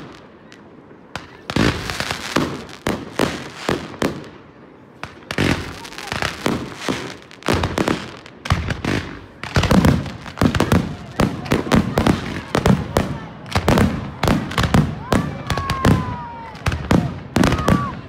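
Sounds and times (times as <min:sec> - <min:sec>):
fireworks crackling: 0:00.0 - 0:18.0.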